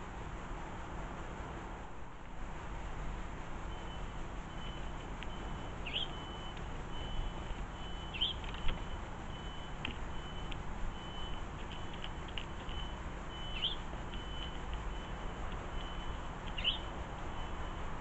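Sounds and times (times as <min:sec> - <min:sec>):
steady low rumble: 0:00.0 - 0:18.0
rising bird chirps: 0:04.6 - 0:08.6, 0:12.6 - 0:14.5, 0:15.9 - 0:16.9.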